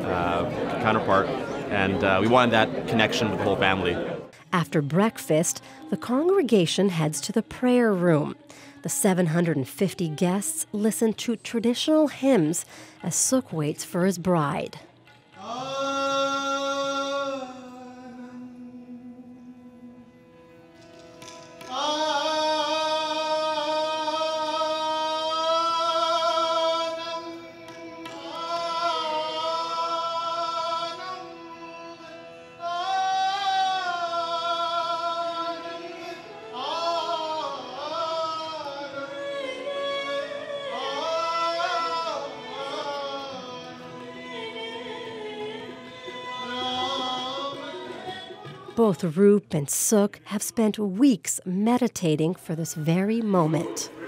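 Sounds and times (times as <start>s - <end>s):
person singing a hymn: 4.5s - 14.8s, 15.4s - 20.1s, 21.6s - 50.6s
harmonium: 15.4s - 49.9s.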